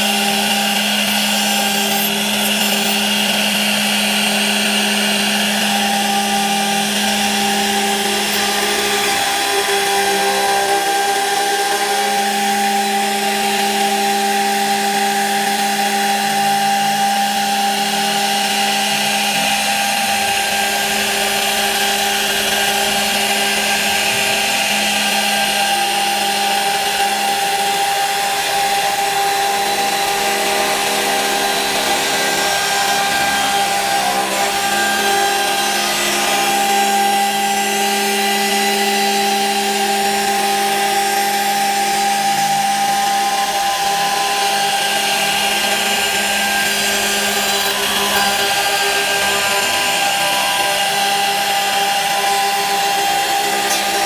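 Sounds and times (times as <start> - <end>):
hiss of wood cutting: 0.0 - 54.0
router spindle whine: 0.0 - 54.0.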